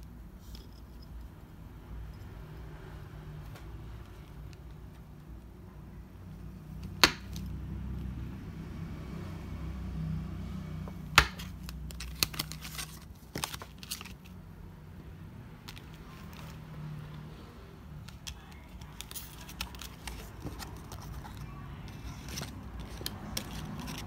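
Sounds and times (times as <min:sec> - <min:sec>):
paper rustling: 0:11.4 - 0:14.4, 0:18.0 - 0:24.0.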